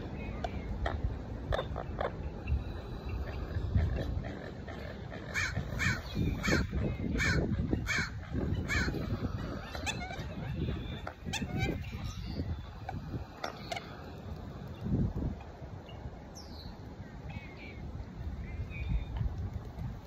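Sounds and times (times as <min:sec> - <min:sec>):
wind rumble on microphone: 0:00.0 - 0:20.0
bird harsh calls: 0:00.2 - 0:14.0.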